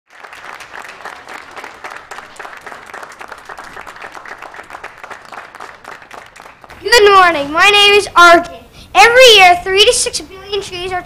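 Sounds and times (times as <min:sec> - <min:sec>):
audience applauding: 0:00.1 - 0:07.1.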